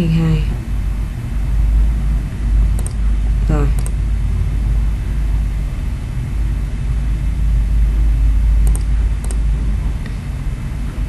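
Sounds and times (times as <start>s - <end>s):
low background rumble: 0.0s - 11.0s
computer mouse clicks: 2.8s - 3.0s, 3.8s - 4.0s, 8.6s - 9.5s.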